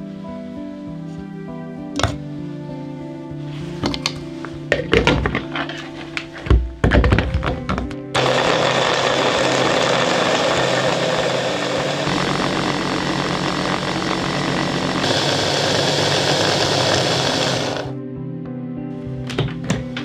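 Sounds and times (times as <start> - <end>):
hand blender whirring: 8.2 - 17.9.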